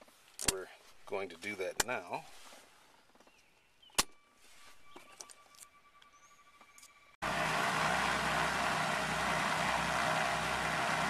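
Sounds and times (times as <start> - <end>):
twin piston engines cabin noise: 7.2 - 11.0.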